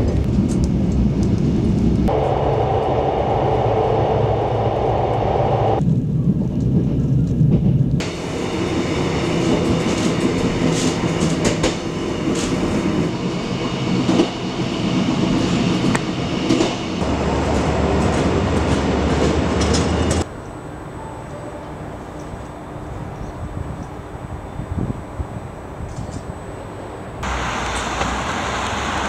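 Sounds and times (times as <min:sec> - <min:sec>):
low hum: 0:00.0 - 0:06.7
train rumbling on rails: 0:00.0 - 0:29.0.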